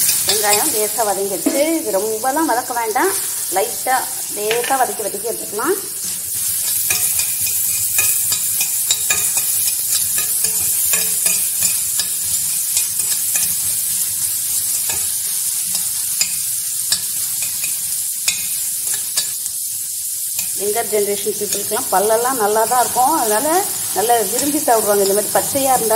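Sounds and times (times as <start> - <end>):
spoon scraping metal pan: 0.0 - 1.8, 6.0 - 19.4
vegetables sizzling in hot oil: 0.0 - 25.9.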